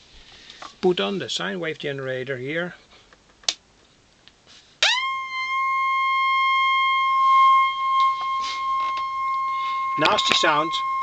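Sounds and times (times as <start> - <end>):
high-pitched sine tone: 4.8 - 11.0.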